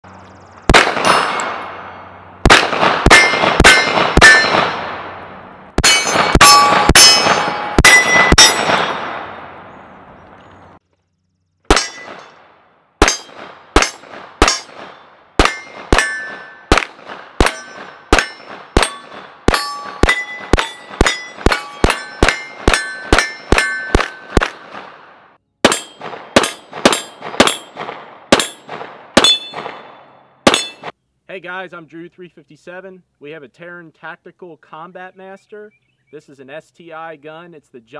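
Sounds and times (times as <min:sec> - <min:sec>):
pistol firing rapid shots: 0:00.7 - 0:01.7, 0:02.4 - 0:05.1, 0:13.0 - 0:25.0, 0:25.6 - 0:30.9
steel targets ringing: 0:00.9 - 0:02.2, 0:03.1 - 0:04.7, 0:05.8 - 0:09.5, 0:11.7 - 0:12.4, 0:13.0 - 0:16.8, 0:17.4 - 0:24.4, 0:25.7 - 0:27.8, 0:28.4 - 0:30.9.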